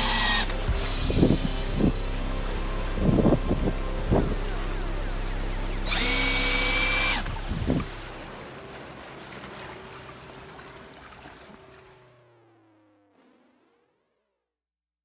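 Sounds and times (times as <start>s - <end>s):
electric motor whining: 0.0s - 1.4s, 3.0s - 7.9s
water churning from propeller: 0.0s - 13.6s.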